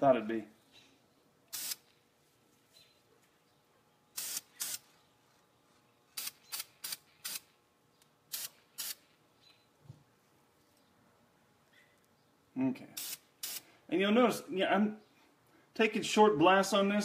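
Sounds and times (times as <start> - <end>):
spray paint hissing: 1.5 - 1.9, 4.2 - 4.9, 6.2 - 7.5, 8.3 - 9.1, 13.0 - 13.7.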